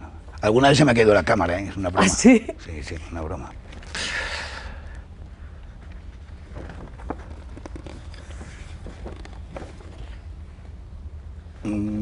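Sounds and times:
steady low hum: 0:00.0 - 0:12.0
photographs tapping and rustling: 0:05.8 - 0:10.4.

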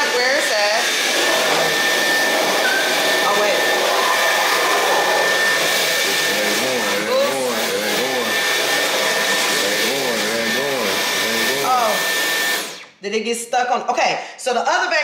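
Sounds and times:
vacuum cleaner motor whine: 0:00.0 - 0:12.9.

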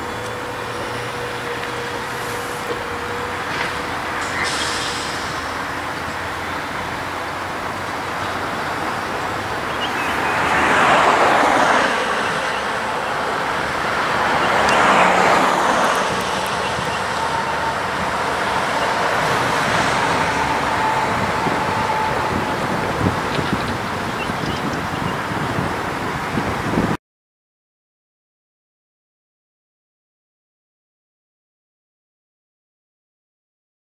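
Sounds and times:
diesel locomotive rumble: 0:00.0 - 0:27.0
vehicles passing: 0:00.0 - 0:27.0.

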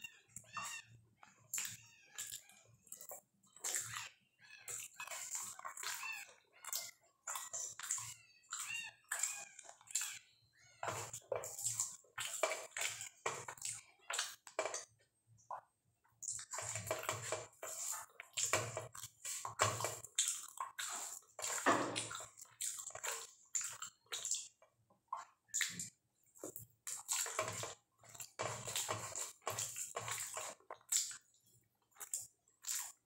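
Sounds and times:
chewing: 0:16.2 - 0:33.0.

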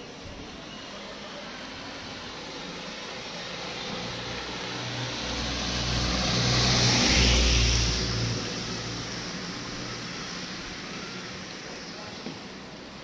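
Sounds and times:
tyres on wet road: 0:00.0 - 0:13.0
pickup truck driving past: 0:01.6 - 0:10.4.

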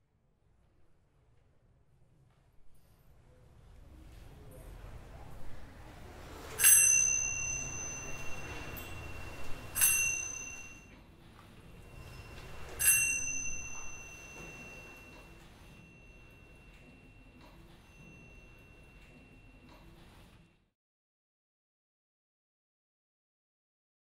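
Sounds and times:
small hand cymbals ringing: 0:06.5 - 0:11.0, 0:11.7 - 0:19.7.

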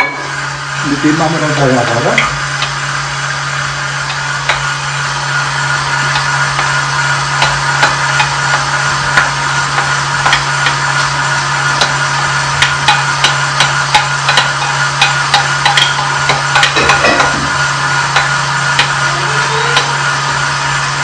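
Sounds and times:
meat grinder motor hum: 0:00.0 - 0:21.0
sharp clicks and knocks: 0:07.4 - 0:11.1, 0:12.6 - 0:19.0.

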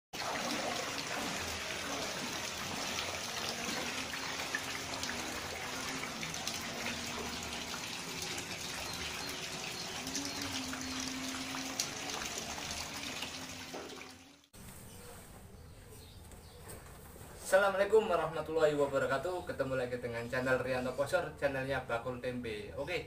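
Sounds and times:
water splashing on plastic sheeting: 0:00.2 - 0:14.2
rain pouring down: 0:00.2 - 0:14.5.

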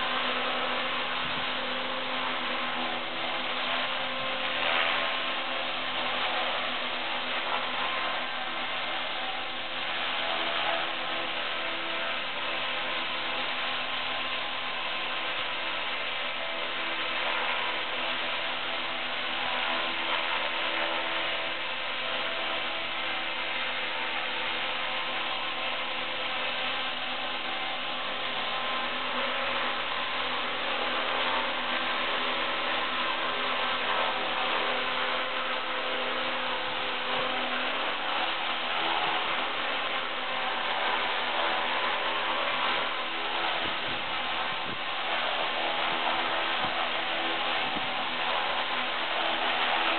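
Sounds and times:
rc helicopter motor whine: 0:00.0 - 0:49.9.

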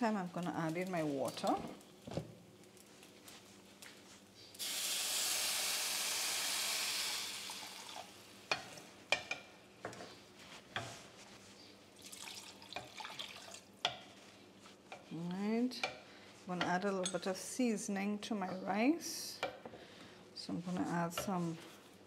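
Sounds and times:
water pouring into hot pot: 0:04.6 - 0:08.2, 0:12.0 - 0:13.7
wooden spoon stirring rice: 0:08.5 - 0:22.0.

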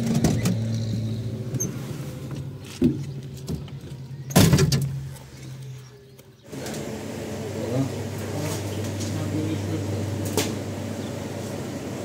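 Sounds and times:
car engine idling: 0:00.0 - 0:04.3.

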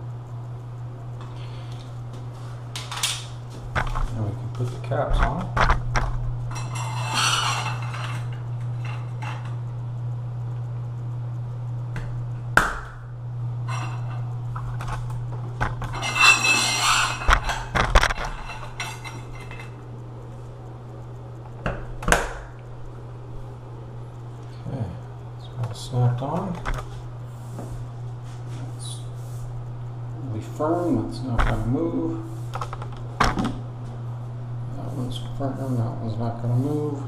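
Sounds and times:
steady low hum: 0:00.0 - 0:37.0
metal scrapes and clinks: 0:06.5 - 0:09.5, 0:15.8 - 0:19.8.

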